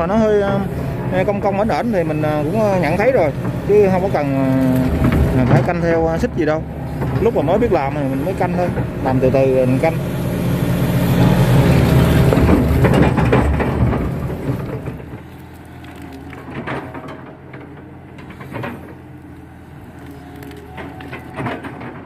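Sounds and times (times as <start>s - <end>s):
excavator diesel engine: 0.0s - 22.0s
crackle of mud: 1.2s - 6.2s, 11.8s - 22.0s
bucket scraping wet mud: 11.6s - 17.0s, 18.2s - 22.0s.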